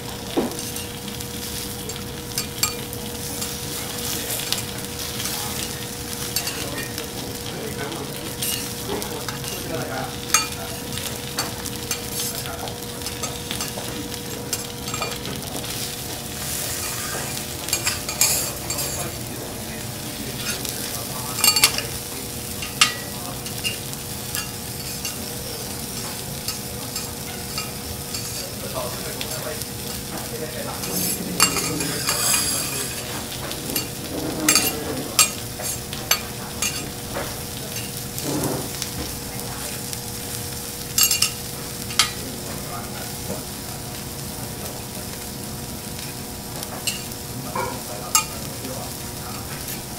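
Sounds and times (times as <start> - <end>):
food sizzling on griddle: 0.0 - 49.9
metal spatulas clicking and scraping: 1.5 - 7.0, 8.4 - 9.7, 10.3 - 15.8, 16.6 - 19.2, 20.4 - 29.2, 30.8 - 37.0, 41.0 - 42.2, 48.1 - 48.4.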